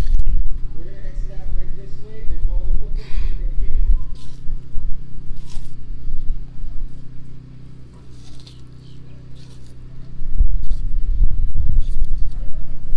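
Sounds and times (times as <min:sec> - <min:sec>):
loud low rumble: 0:00.0 - 0:08.4, 0:09.7 - 0:12.9
steady low hum: 0:00.0 - 0:12.9
tortoise chewing watermelon: 0:03.8 - 0:12.9.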